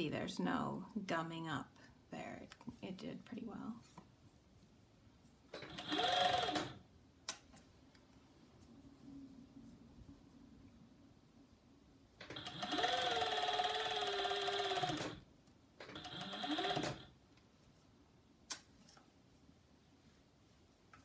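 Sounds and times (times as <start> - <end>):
overlocker motor stitching: 5.6 - 6.8, 12.2 - 15.2, 15.8 - 17.1.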